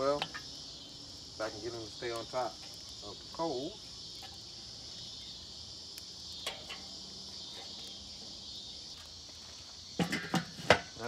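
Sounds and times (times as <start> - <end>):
insects chirring: 0.0 - 11.0.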